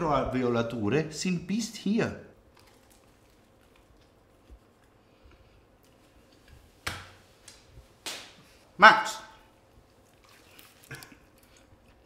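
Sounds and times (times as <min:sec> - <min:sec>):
faint chewing: 0:02.4 - 0:06.7, 0:09.6 - 0:12.0.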